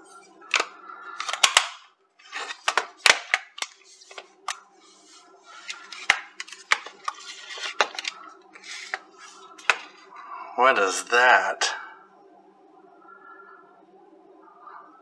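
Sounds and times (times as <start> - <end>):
battery cover snapping shut: 0.5 - 1.8
radio buttons clicking: 0.5 - 1.8, 5.6 - 9.0.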